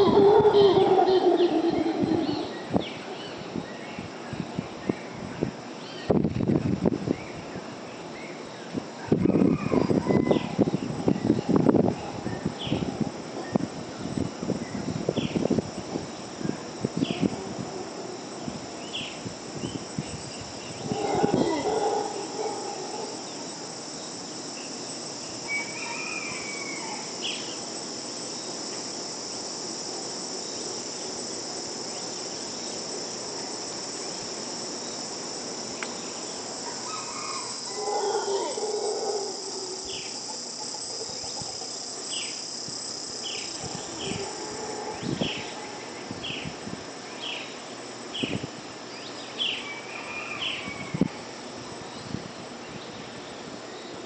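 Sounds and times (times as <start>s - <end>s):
howler monkeys roaring: 0.0s - 3.4s, 9.1s - 13.7s, 15.8s - 19.0s, 20.6s - 23.7s, 25.5s - 27.6s, 36.6s - 41.8s, 43.3s - 46.1s
insects droning: 0.0s - 54.0s.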